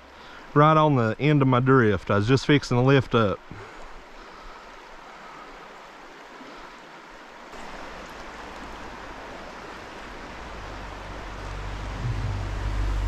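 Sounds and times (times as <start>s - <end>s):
stream water rushing: 0.0s - 13.0s
deep rumble: 10.1s - 13.0s.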